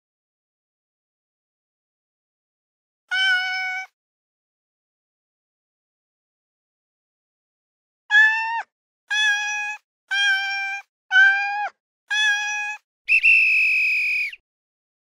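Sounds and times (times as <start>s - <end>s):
short cat meows: 3.1s - 4.0s, 8.1s - 12.8s.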